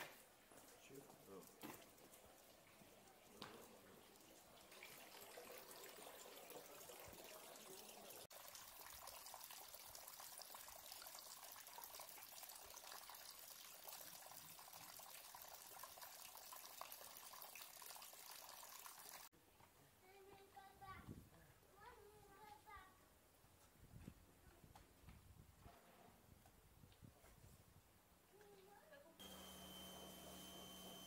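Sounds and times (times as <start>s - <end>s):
faint fountain water trickling: 0.2s - 19.3s.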